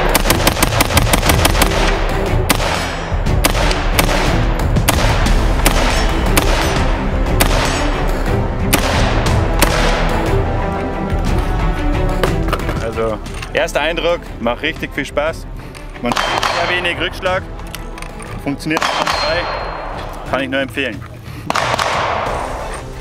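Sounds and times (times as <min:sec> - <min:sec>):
rifle shots: 0:00.0 - 0:07.9, 0:08.7 - 0:10.2, 0:16.1 - 0:16.9, 0:18.7 - 0:20.0, 0:21.5 - 0:22.7.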